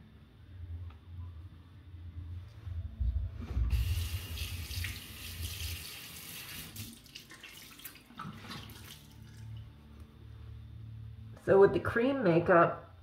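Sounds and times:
tap water running into sink: 0:03.7 - 0:09.4
water splashes and drips: 0:03.7 - 0:09.7.

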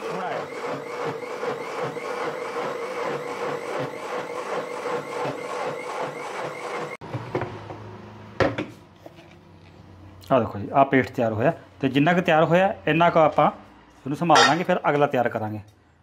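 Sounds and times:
mixer grinder motor whine: 0:00.0 - 0:08.2.

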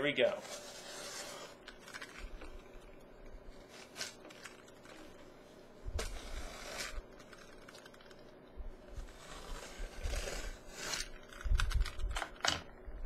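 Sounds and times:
box cutter slitting packing tape: 0:06.0 - 0:08.2, 0:09.2 - 0:12.0.

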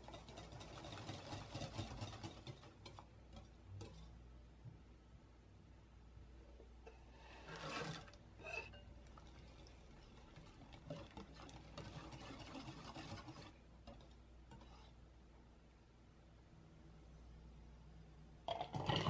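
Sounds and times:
whisk scraping glass bowl: 0:00.0 - 0:04.1, 0:07.0 - 0:15.0.

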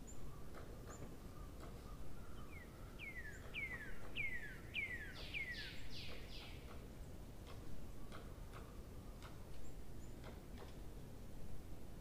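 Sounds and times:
bird singing: 0:00.0 - 0:06.7.

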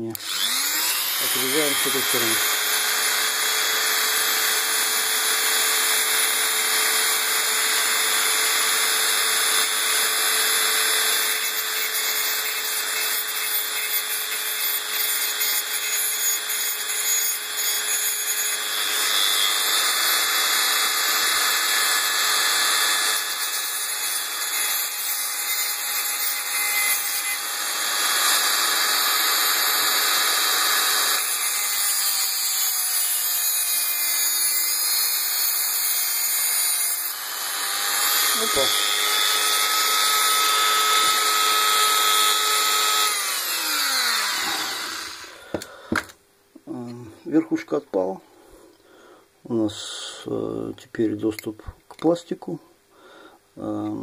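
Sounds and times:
rotary tool grinding metal: 0:00.0 - 0:46.1.

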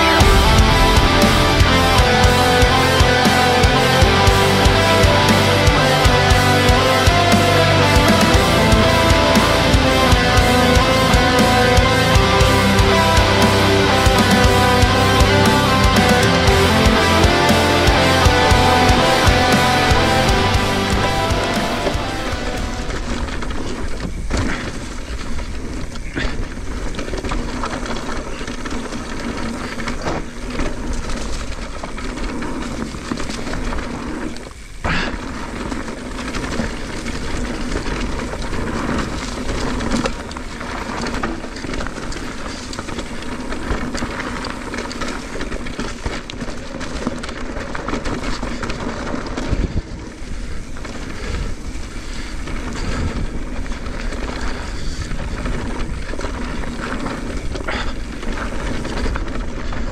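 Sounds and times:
tyres rumbling on dirt: 0:00.0 - 0:59.9
wind rushing over camera: 0:22.2 - 0:59.9.

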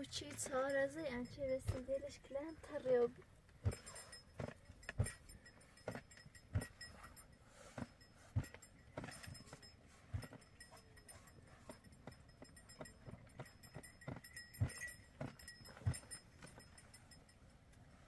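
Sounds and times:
soft thumps and knocks: 0:03.6 - 0:16.8.

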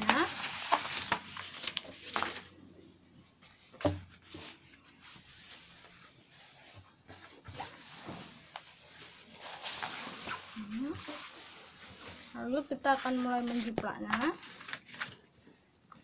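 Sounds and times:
paper and fabric rustling: 0:00.0 - 0:16.0.

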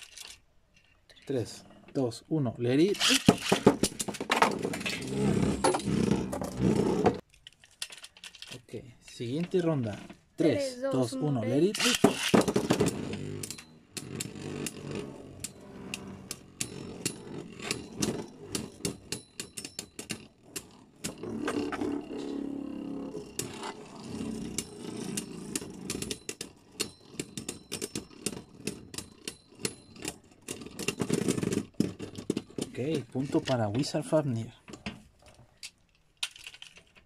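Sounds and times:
spinning tops whirring on plastic: 0:02.8 - 0:07.2, 0:11.6 - 0:32.7
spinning tops clicking and clacking: 0:11.6 - 0:14.8.

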